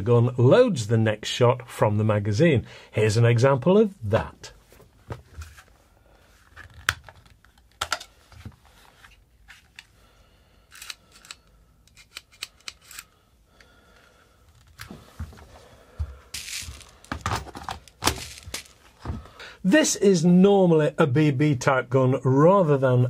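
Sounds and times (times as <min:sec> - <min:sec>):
rifle handling rustle and knock: 0:14.0 - 0:19.3.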